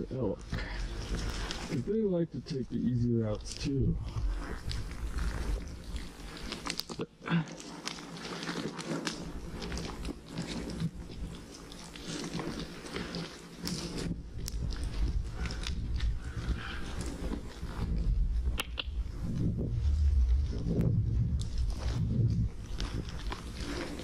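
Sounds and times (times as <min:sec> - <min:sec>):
footsteps on rocky trail: 0:07.6 - 0:24.0
low rumble: 0:14.7 - 0:24.0.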